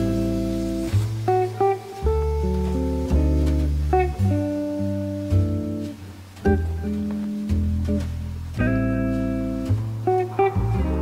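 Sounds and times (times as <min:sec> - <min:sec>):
acoustic guitar chords: 0:00.0 - 0:11.0
bass line: 0:00.0 - 0:11.0.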